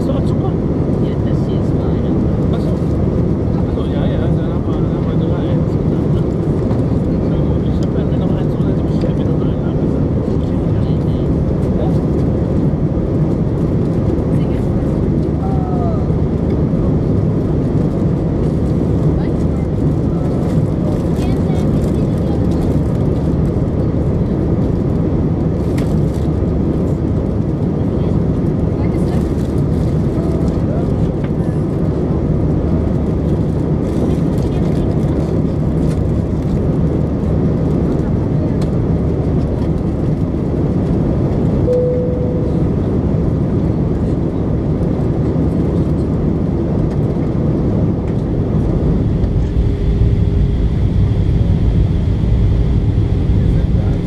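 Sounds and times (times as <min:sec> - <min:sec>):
airliner cabin roar: 0:00.0 - 0:54.0
short steady tone: 0:41.7 - 0:42.8.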